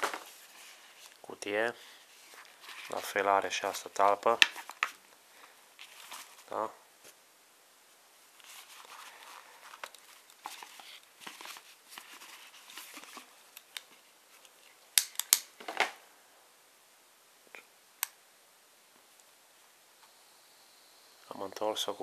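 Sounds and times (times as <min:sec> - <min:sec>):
rustling of gift box packaging: 0:00.0 - 0:07.2, 0:08.3 - 0:14.8.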